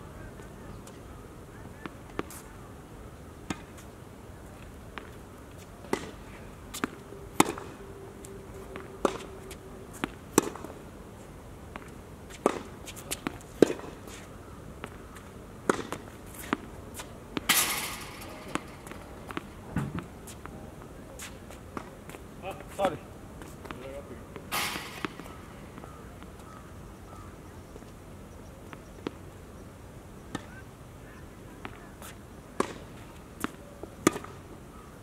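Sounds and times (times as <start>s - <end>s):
racket striking tennis ball: 5.8s - 7.8s, 8.4s - 10.8s, 11.7s - 14.2s, 15.6s - 20.4s, 24.4s - 26.4s, 32.6s - 34.4s
ball bouncing on hard court: 17.4s - 20.1s, 24.5s - 25.9s
short rushing scuff: 24.5s - 25.4s.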